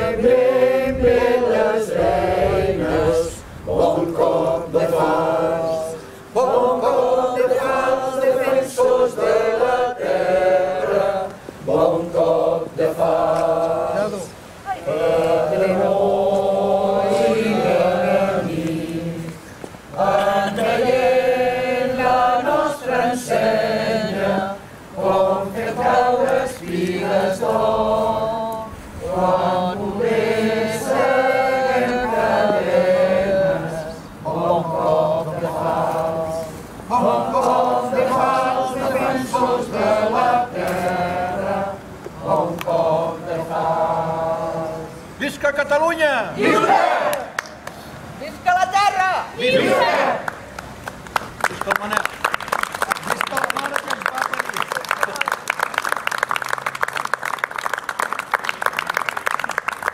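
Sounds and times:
group singing unaccompanied: 0.0s - 45.2s, 46.3s - 47.4s, 49.4s - 50.5s.

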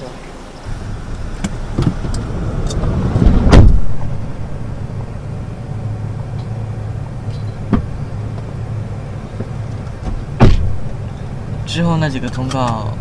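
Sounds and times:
vehicle low hum: 0.0s - 13.0s
rumble: 0.6s - 12.3s
van door shutting bang: 0.7s - 4.8s, 10.0s - 10.9s.

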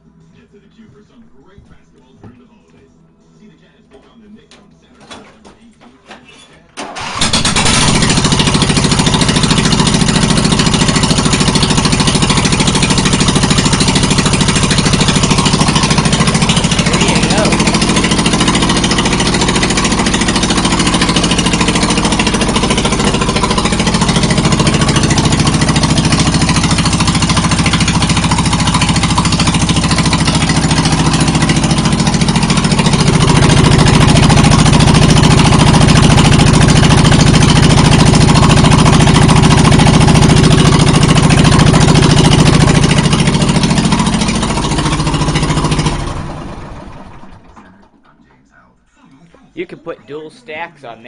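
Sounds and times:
mower engine idling with open exhaust: 6.8s - 47.6s.

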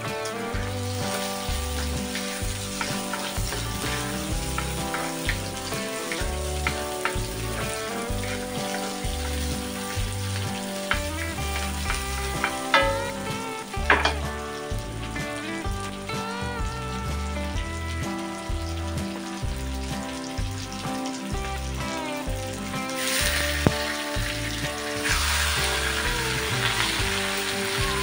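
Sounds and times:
background music: 0.0s - 28.0s
onions sizzling in oil: 0.0s - 28.0s
wooden spoon stirring: 0.9s - 14.3s
sharp knocks: 11.9s - 14.3s.

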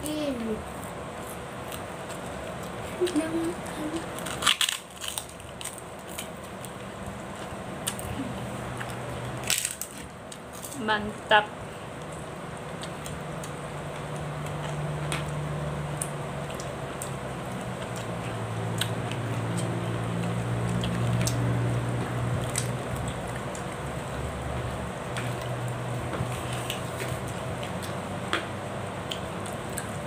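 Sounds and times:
low steady hum: 0.0s - 30.0s
chewing and wet mouth noises: 29.0s - 30.0s.

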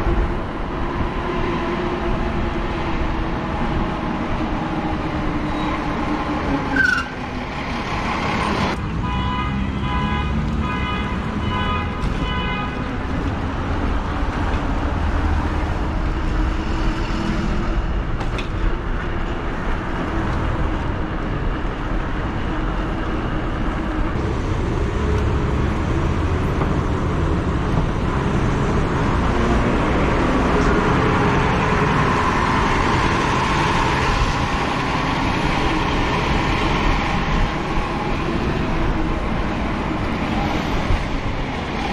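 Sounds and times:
wind rumbling on microphone: 0.0s - 8.9s
street traffic: 0.0s - 41.9s.

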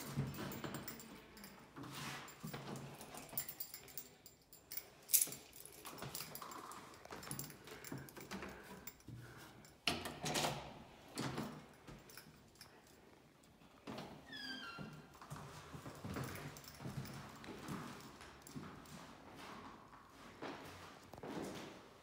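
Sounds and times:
handling clicks and rustling: 0.0s - 13.6s.

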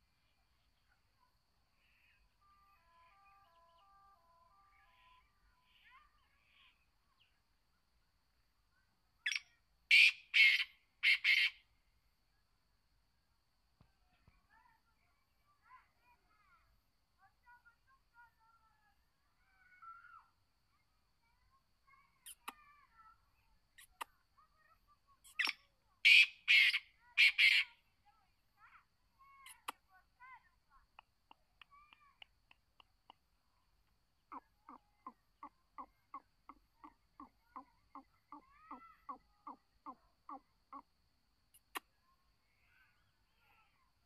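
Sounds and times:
faint small bird chirps: 0.0s - 12.4s, 13.7s - 44.0s
francolin rasping call: 9.3s - 11.6s, 25.3s - 27.8s.

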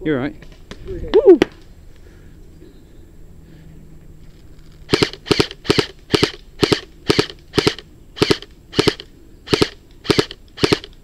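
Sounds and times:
airsoft rifle shots: 4.9s - 11.0s.

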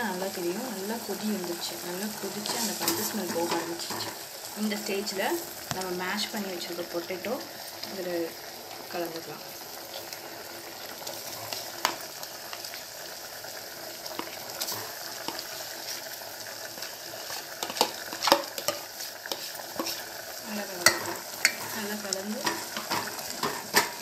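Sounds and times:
spoon scraping: 17.2s - 20.1s.

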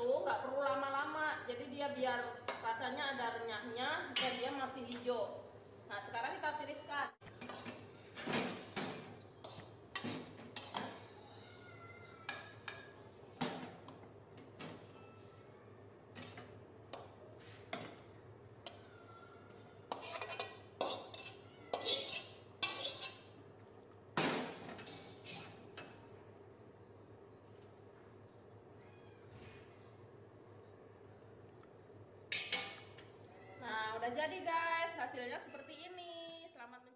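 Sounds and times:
metal spatula scraping wok: 19.9s - 23.3s.

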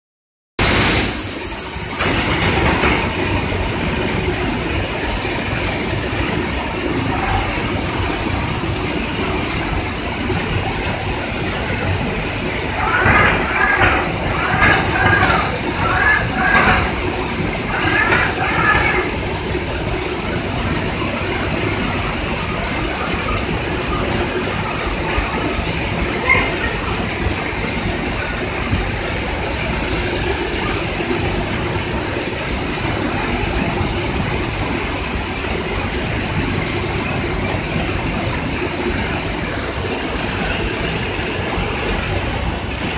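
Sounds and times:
robotic spray-painting line running: 0.6s - 39.5s.

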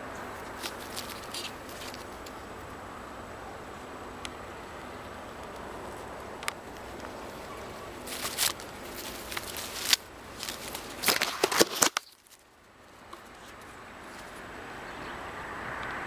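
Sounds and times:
leaves and twigs rustling: 0.0s - 15.1s
steady background hiss: 0.0s - 16.0s
sharp scratches and clicks: 0.4s - 2.4s, 8.0s - 14.3s.

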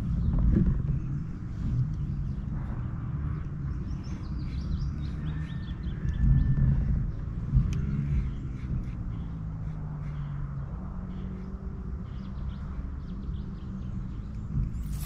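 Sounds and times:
wind rumbling on microphone: 0.0s - 9.3s
small bird chirping: 11.1s - 15.0s.

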